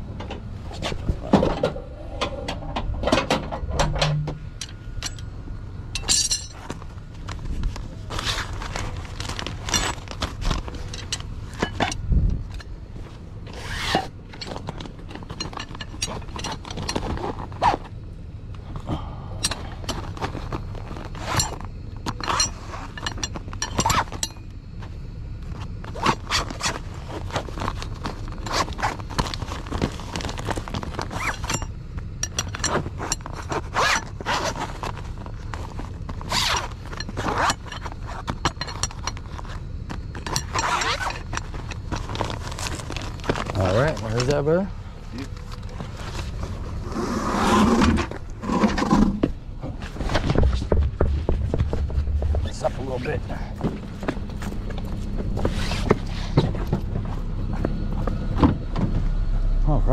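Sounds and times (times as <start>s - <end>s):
fabric bag rustling: 6.6s - 11.0s, 39.2s - 44.2s
zipper: 13.5s - 14.1s, 33.1s - 34.9s, 36.2s - 38.2s, 40.5s - 41.3s, 46.2s - 49.2s, 55.4s - 56.4s
scraping: 18.6s - 59.0s.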